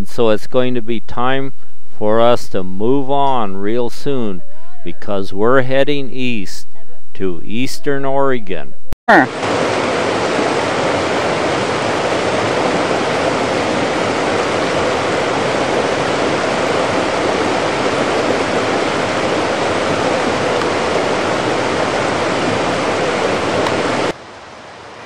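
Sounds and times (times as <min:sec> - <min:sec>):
mountain creek rushing: 0:09.2 - 0:25.0.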